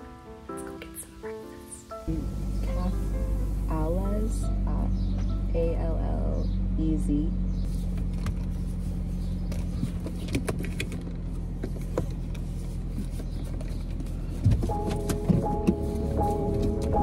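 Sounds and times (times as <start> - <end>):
music: 0.0 - 6.6, 14.7 - 17.0
car engine hum inside cabin: 2.0 - 17.0.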